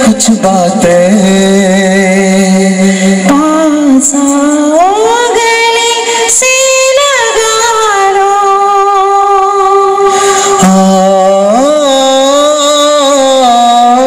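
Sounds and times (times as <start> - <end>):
man singing into a microphone: 0.0 - 14.0.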